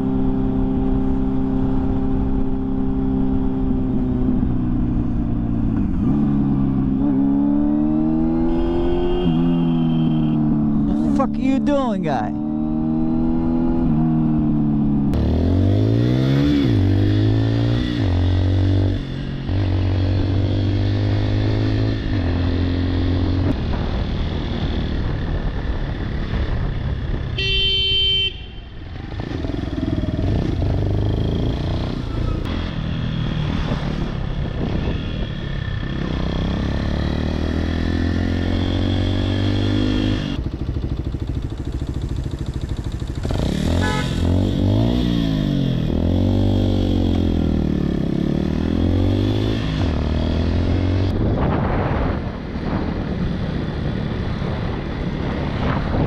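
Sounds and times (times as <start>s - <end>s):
motorcycle engine accelerating: 0.0s - 27.9s, 28.8s - 56.0s
vehicle horn blast: 8.4s - 10.6s, 27.4s - 28.8s, 43.6s - 44.6s.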